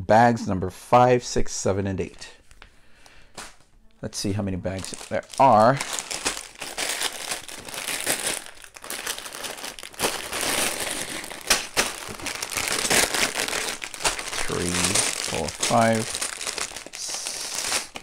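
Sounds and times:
plastic bags crinkling: 4.6s - 18.0s.

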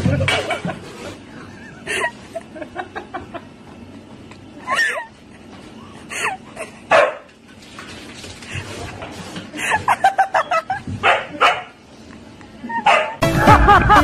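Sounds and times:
dog barking and yipping: 6.9s - 7.3s, 11.0s - 11.7s, 12.8s - 13.2s.

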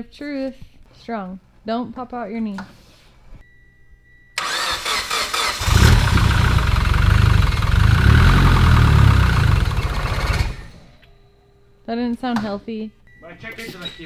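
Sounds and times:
car engine running roughly: 4.4s - 10.8s
starter motor cranking: 4.4s - 10.8s.

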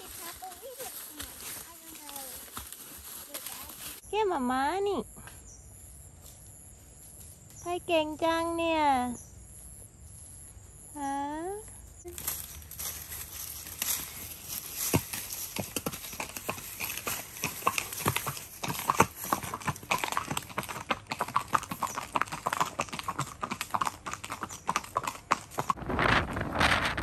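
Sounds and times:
horse hooves clip-clopping: 0.0s - 4.0s, 12.1s - 25.8s.

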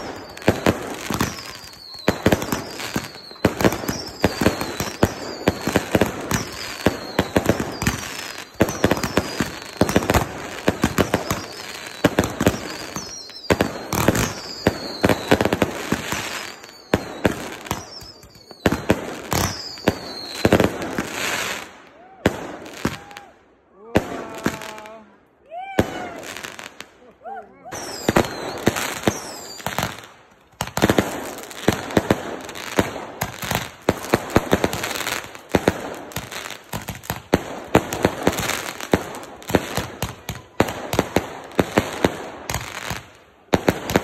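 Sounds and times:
falling firework whistles: 0.0s - 22.1s, 27.7s - 30.1s
fireworks bangs: 0.0s - 25.1s, 27.7s - 44.0s.

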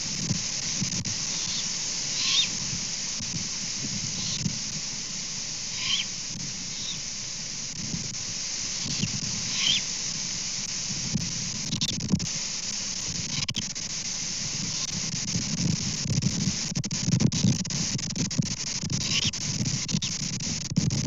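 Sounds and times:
steady hiss: 0.0s - 21.0s
young owls screeching: 1.3s - 2.7s, 4.1s - 4.5s, 5.7s - 7.0s, 8.8s - 9.9s
wind rumbling on microphone: 7.7s - 12.4s, 14.3s - 21.0s.

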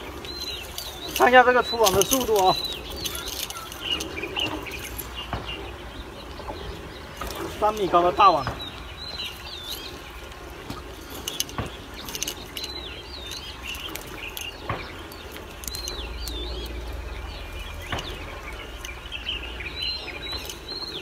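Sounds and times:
songbird whistling: 0.0s - 7.7s
low rumble: 14.8s - 21.0s.

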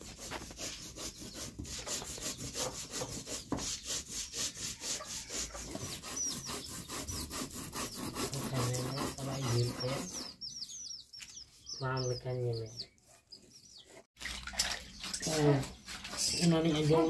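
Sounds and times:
stone roller grinding on stone: 0.0s - 10.4s
small birds chirping: 0.1s - 17.0s.

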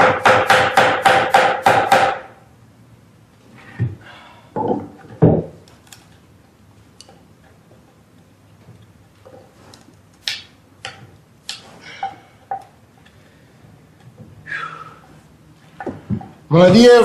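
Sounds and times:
mallet striking chisel: 0.0s - 2.3s.

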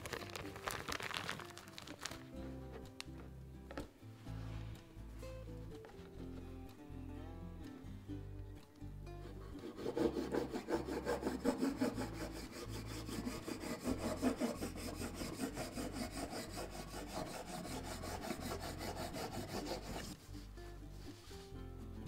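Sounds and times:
serrated blade sawing through cake: 9.4s - 20.2s.

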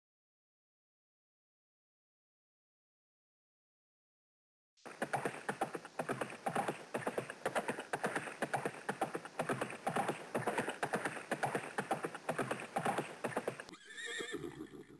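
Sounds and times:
galloping hoofbeats: 4.8s - 14.7s.

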